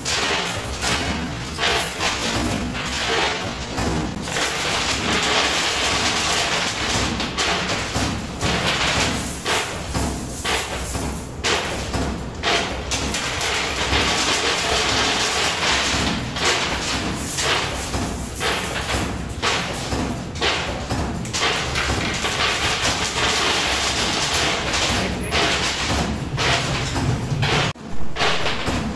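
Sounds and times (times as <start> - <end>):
clatter of coins: 0.0 - 3.6, 4.2 - 20.7, 21.4 - 28.6.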